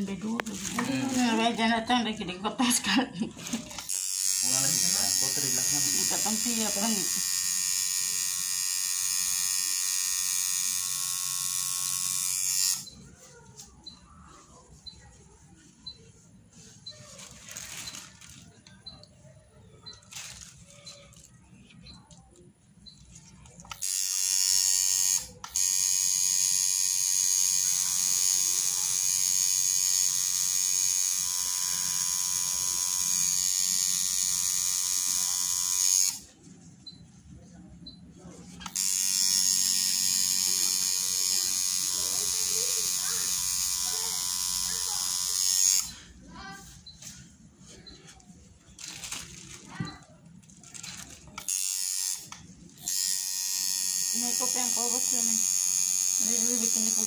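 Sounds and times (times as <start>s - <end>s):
tattoo machine buzzing: 3.5s - 13.0s, 23.7s - 36.3s, 38.6s - 46.0s, 51.4s - 57.0s.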